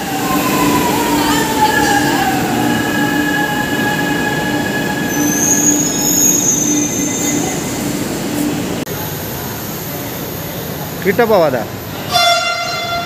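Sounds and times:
high wheel squeal: 1.8 - 7.8.

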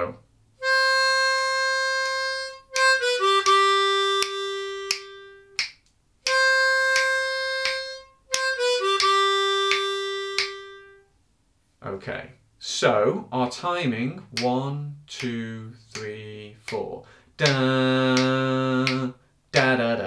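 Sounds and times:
harmonica blues phrase: 0.6 - 5.6, 6.3 - 11.1
metronome clicking: 2.6 - 10.8.

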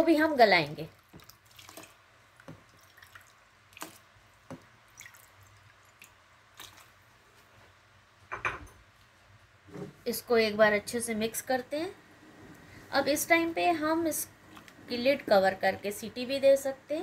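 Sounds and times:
water dripping and splashing: 0.9 - 7.1.

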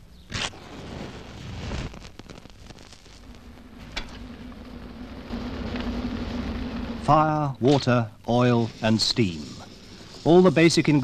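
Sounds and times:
low steady hum: 0.0 - 11.0
steam locomotive hissing: 3.7 - 11.0.

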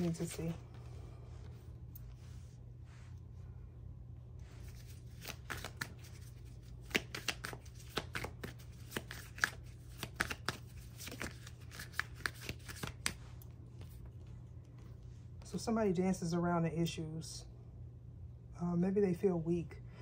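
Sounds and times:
cards being shuffled: 0.0 - 0.6, 4.6 - 14.3
low steady hum: 0.0 - 20.0.

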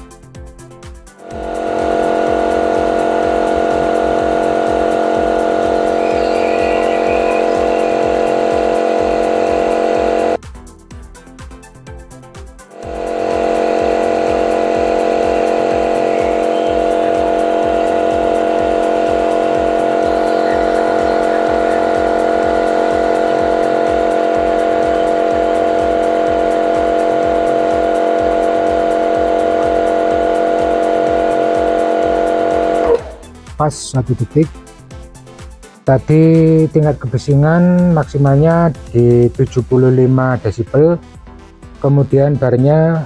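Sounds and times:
pressure washer motor and pump hum: 1.2 - 10.4, 12.8 - 33.3.

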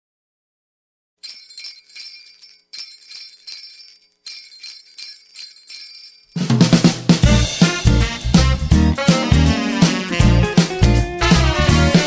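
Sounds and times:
jingle bells shaken: 1.2 - 6.8.

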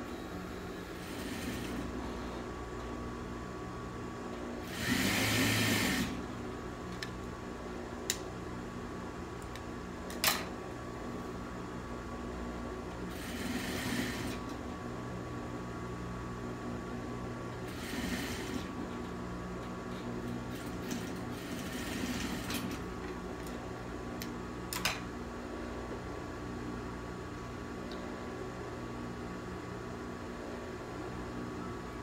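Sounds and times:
steady hum: 0.0 - 32.0
sewing machine stitching: 0.8 - 2.0, 4.6 - 6.2, 13.0 - 14.5, 17.6 - 18.8, 20.5 - 22.9.

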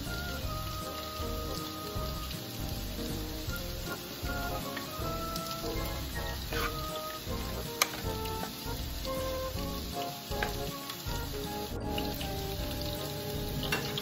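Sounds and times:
chicken sizzling in a frying pan: 0.0 - 14.0
wooden spatula stirring: 3.9 - 8.8.

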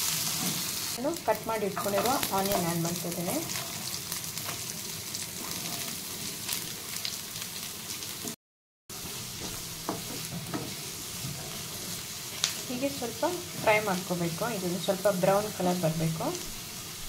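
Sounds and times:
onions sizzling in oil: 0.0 - 17.0
wooden spatula knocking and scraping: 9.0 - 12.6.

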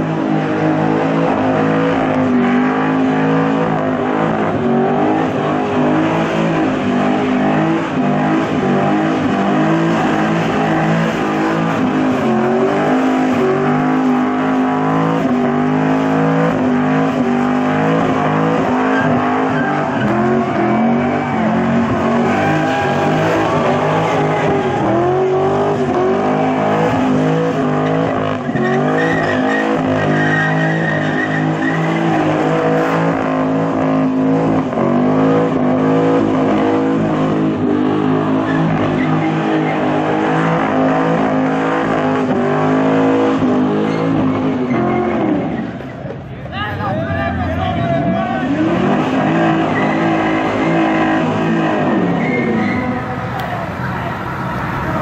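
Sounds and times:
car engine revving high: 0.0 - 45.8, 48.0 - 55.0
tyres squealing: 17.2 - 33.0, 48.4 - 55.0.

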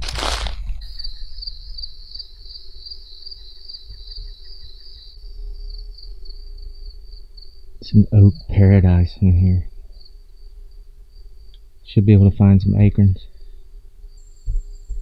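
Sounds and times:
insect chirping rapidly: 0.1 - 8.4, 9.8 - 11.7, 13.3 - 15.0.

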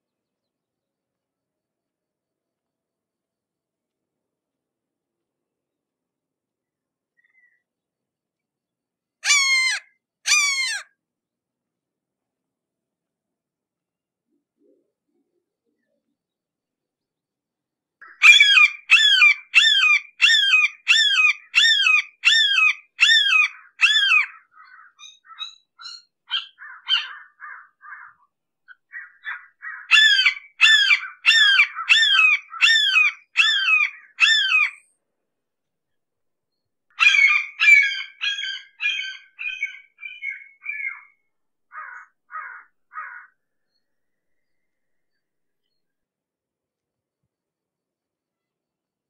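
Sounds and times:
hawk screaming calls: 9.2 - 10.8.

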